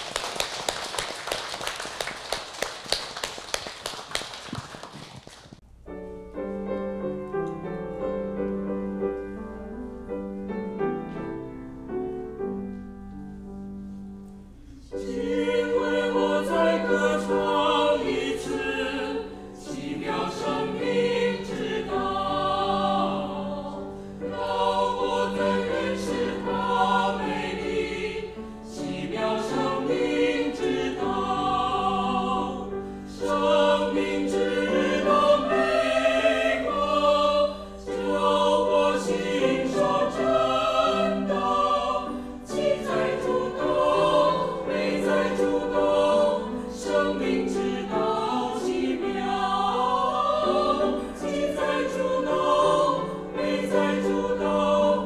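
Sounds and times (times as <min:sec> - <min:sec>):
piano: 0:00.0 - 0:55.0
choir singing a hymn: 0:13.9 - 0:55.0.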